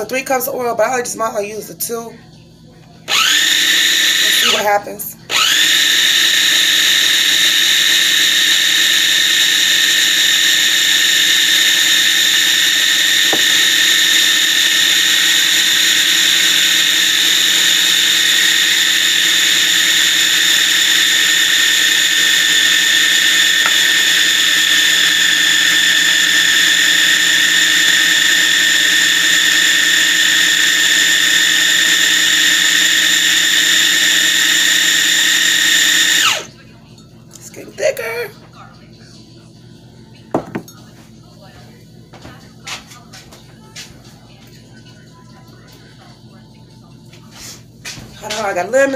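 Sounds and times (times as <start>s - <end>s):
food processor motor whining: 3.1s - 4.6s, 5.3s - 36.5s.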